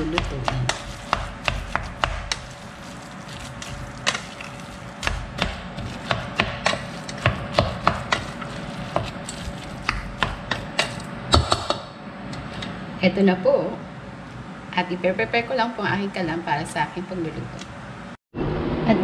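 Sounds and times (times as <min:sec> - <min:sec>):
spatula knocking on metal pot: 0:00.0 - 0:02.5, 0:05.0 - 0:09.2
spatula stirring meat filling: 0:00.0 - 0:11.0.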